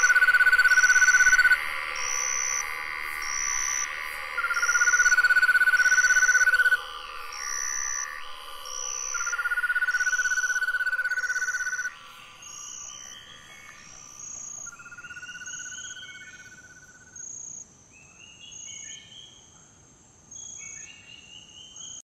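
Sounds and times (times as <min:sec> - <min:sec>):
insects shrill calling: 0:00.0 - 0:17.6
low pulsing insect buzz: 0:00.0 - 0:17.6
short rising insect calls: 0:00.0 - 0:17.6.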